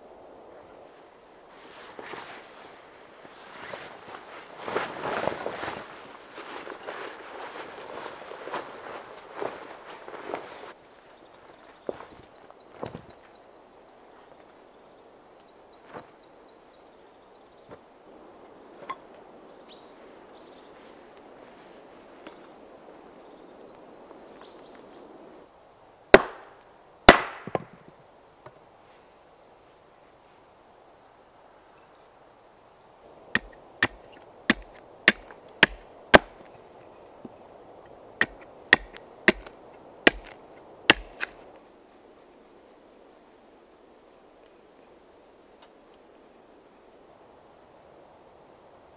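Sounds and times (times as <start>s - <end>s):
billhook chopping wood: 26.2s - 26.5s, 27.1s - 27.7s, 33.4s - 36.6s, 38.2s - 41.4s.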